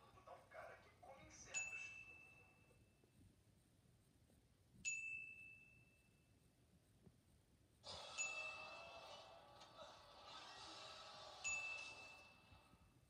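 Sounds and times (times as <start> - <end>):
bell-like ding: 8.0 - 8.9, 11.4 - 12.4.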